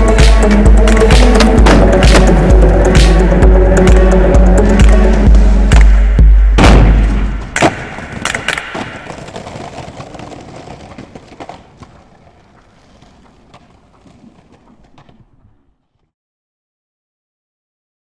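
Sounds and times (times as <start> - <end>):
music with heavy bass: 0.0 - 6.6
skateboard landing clack: 1.2 - 2.6, 6.6 - 15.4
skateboard rolling on paving: 8.0 - 16.1.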